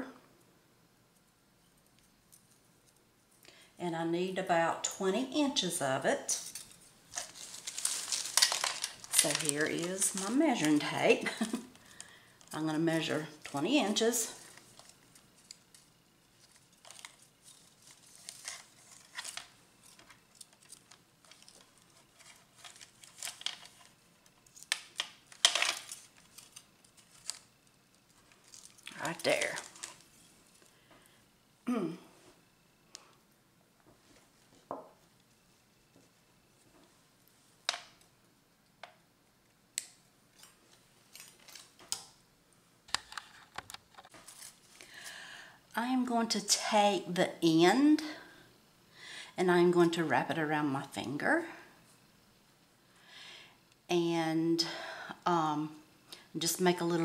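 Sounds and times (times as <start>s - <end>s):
wire rustling and crinkling: 5.8s - 31.1s, 39.8s - 42.2s, 42.9s - 45.1s.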